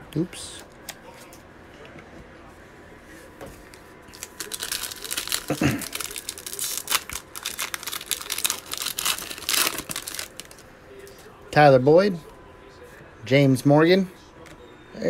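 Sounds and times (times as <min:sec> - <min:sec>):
foil wrapper crinkling: 0:04.1 - 0:10.6.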